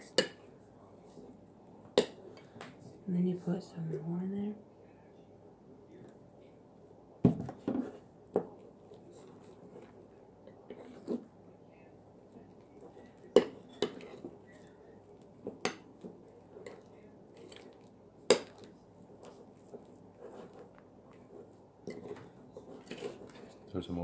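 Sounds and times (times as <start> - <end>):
utensil stirring slime: 7.8 - 11.4, 12.3 - 24.0.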